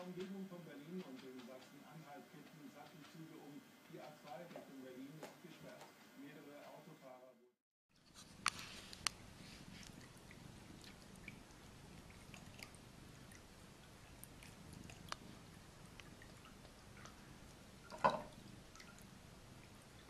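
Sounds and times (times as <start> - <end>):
faint clicks and taps: 0.0 - 6.0, 9.8 - 19.1
low steady hum: 0.0 - 20.0.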